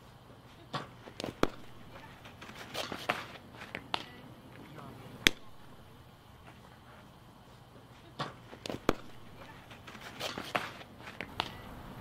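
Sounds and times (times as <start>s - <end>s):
outdoor ambience: 0.0s - 12.0s
ball striking dirt and gear: 0.7s - 4.2s, 8.2s - 11.6s.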